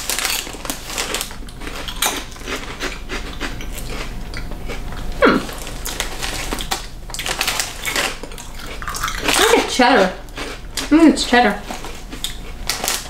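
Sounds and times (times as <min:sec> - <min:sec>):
crunchy snacks being chewed: 0:00.0 - 0:13.0
plastic snack bag crinkling: 0:00.0 - 0:13.0
person humming mm: 0:05.2 - 0:05.6.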